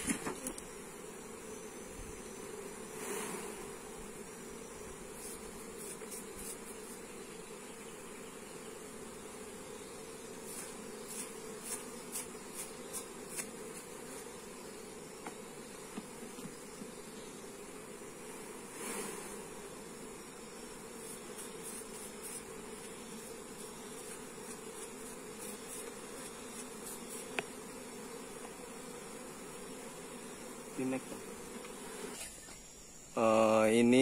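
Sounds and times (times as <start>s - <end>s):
bee brush swishing: 0.0s - 32.6s
bees buzzing: 0.0s - 34.0s.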